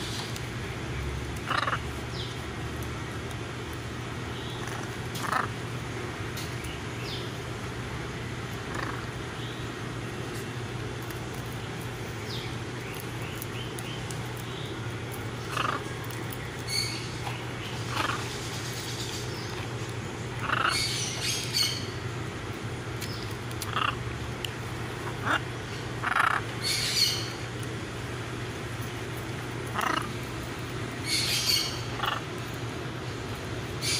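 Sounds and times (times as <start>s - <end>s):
steady low hum: 0.0s - 33.9s
macaws calling: 1.4s - 2.4s, 4.4s - 5.7s, 8.6s - 9.6s, 12.3s - 22.1s, 23.0s - 24.2s, 24.9s - 27.5s, 29.6s - 32.6s.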